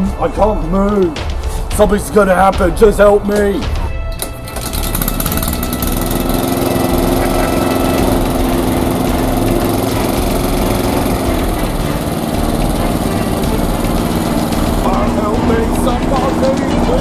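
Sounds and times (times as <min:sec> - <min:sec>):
lawn mower engine running: 0:04.1 - 0:17.0.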